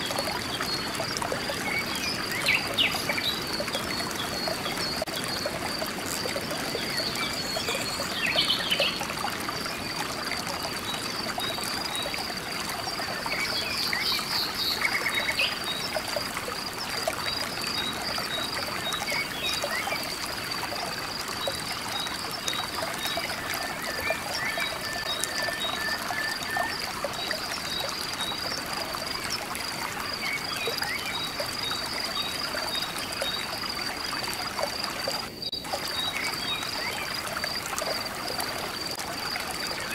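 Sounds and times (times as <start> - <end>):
frogs chirping: 0.0 - 39.9.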